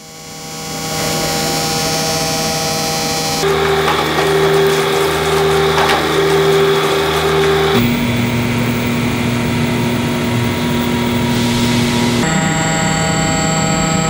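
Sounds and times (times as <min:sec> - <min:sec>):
metal-cutting machine running: 0:00.1 - 0:09.2.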